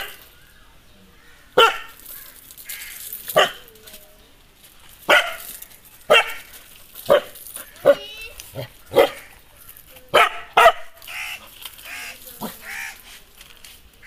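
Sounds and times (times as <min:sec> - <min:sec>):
dog barking aggressively: 0:01.6 - 0:02.0, 0:03.3 - 0:03.6, 0:05.1 - 0:05.5, 0:06.1 - 0:06.5, 0:07.1 - 0:09.3, 0:10.1 - 0:11.4.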